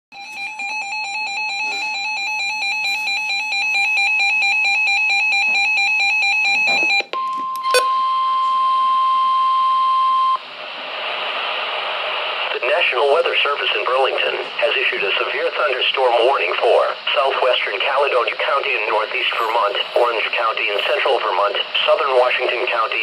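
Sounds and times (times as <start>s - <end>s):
steady warning alarm tone: 0.1s - 10.4s, 18.6s - 22.4s
radio hiss: 10.4s - 23.0s.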